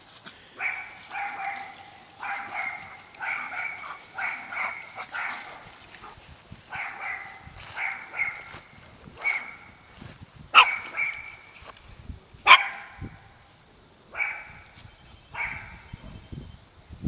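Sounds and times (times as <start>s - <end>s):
dog yapping: 0.6s - 5.7s, 6.7s - 8.5s, 9.2s - 9.7s, 10.6s - 11.4s, 12.5s - 12.9s.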